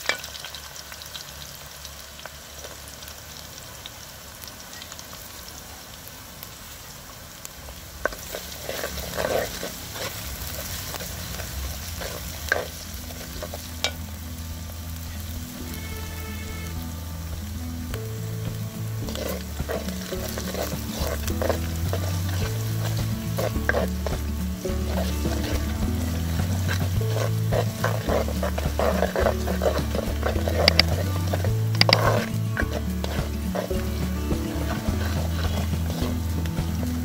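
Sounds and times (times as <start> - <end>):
onions sizzling in oil: 0.0 - 37.0
wooden spoon stirring and scraping: 8.0 - 37.0
background music: 11.9 - 37.0.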